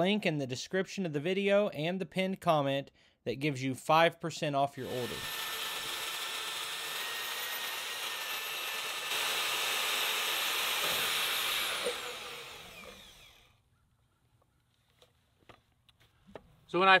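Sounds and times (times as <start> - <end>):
band saw cutting steel pipe: 4.8 - 13.5.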